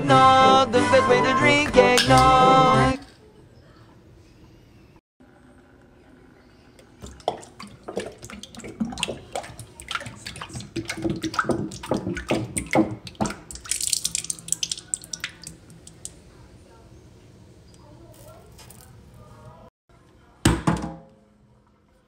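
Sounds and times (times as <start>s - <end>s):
liquid glugging into a sink: 7.0s - 16.2s.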